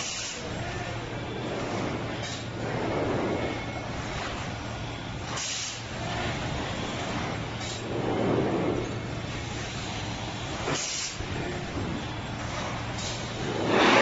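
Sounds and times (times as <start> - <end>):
compressed air hisses: 0.0 - 0.6, 5.3 - 6.0, 9.4 - 11.4, 12.5 - 14.0
factory machinery humming: 0.0 - 14.0.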